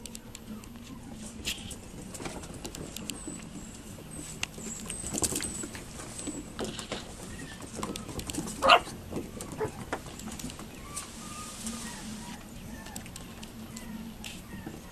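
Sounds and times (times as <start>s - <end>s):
paws tapping on wooden deck: 2.0s - 11.1s
puppy yip: 8.6s - 9.8s.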